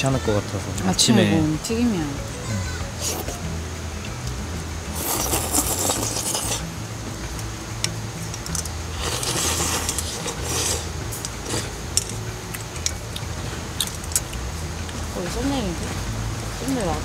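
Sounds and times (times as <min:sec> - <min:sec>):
chopsticks scraping steel bowls: 0:03.0 - 0:03.4, 0:05.0 - 0:06.6, 0:08.6 - 0:12.2.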